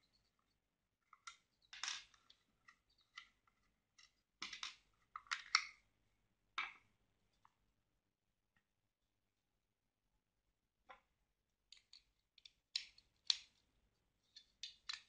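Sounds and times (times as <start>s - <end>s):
plastic clicks and scrapes: 14.2s - 15.0s.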